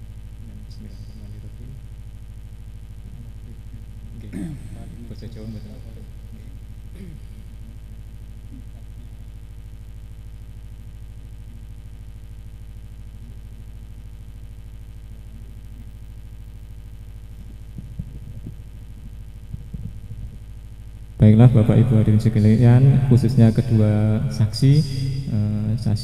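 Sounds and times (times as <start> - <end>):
electrical hum: 0.0 - 26.0
microphone knocks: 17.7 - 20.5.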